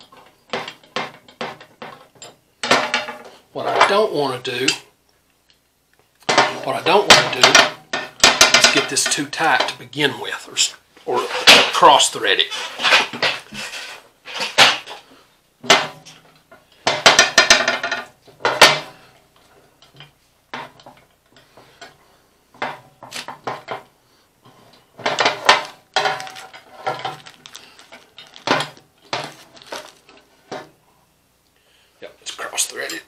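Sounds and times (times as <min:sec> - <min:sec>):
metal fittings clinking and rattling: 0:24.7 - 0:30.2.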